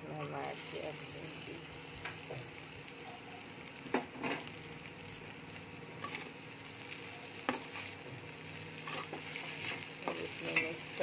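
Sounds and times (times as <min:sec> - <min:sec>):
okra frying with sizzle: 0:00.0 - 0:11.0
metal spatula scraping pan: 0:08.8 - 0:10.7.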